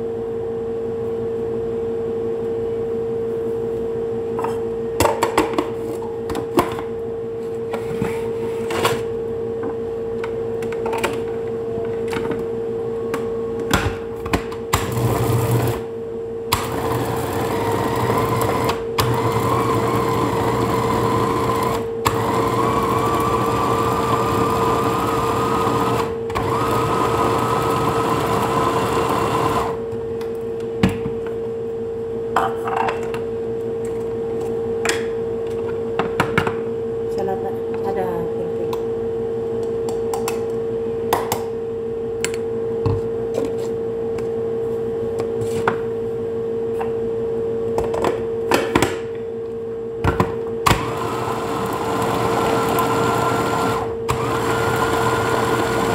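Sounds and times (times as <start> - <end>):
electric food chopper whirring: 14.7 - 15.9, 16.5 - 29.9, 50.6 - 55.9.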